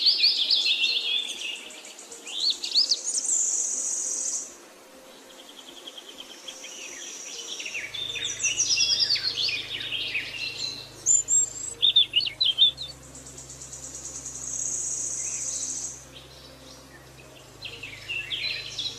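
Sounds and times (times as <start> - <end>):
songbirds chirping: 0.0 - 18.9
faint low hum: 4.5 - 18.9.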